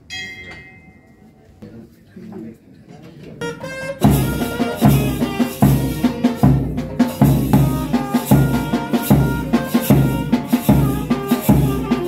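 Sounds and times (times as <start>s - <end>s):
barrel drums beating: 3.4s - 12.0s
brass horns blowing held notes: 3.4s - 12.0s.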